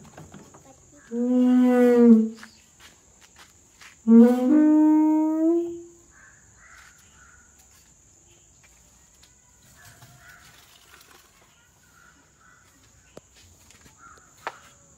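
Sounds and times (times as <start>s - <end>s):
bird calls: 6.0s - 7.9s, 9.7s - 14.8s.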